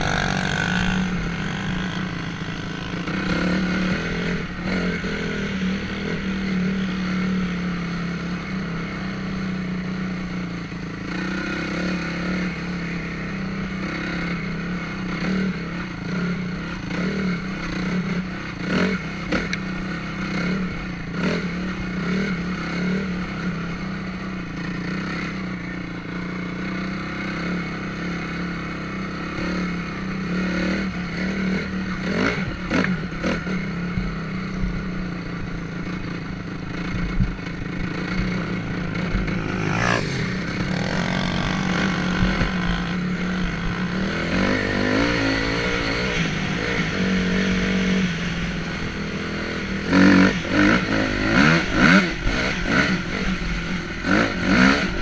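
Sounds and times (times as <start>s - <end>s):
dirt bike engine revving: 0.0s - 6.8s, 37.6s - 47.9s.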